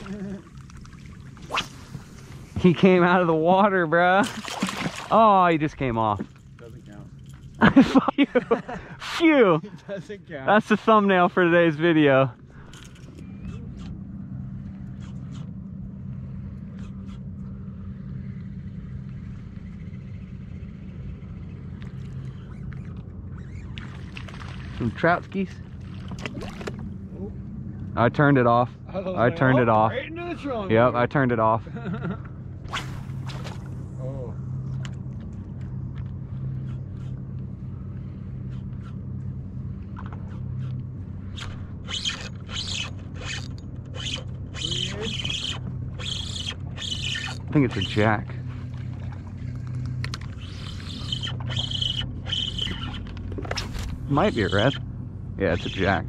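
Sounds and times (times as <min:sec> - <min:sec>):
boat motor humming: 0:00.0 - 0:56.0
fishing reel zipping: 0:41.3 - 0:48.0, 0:50.1 - 0:54.8.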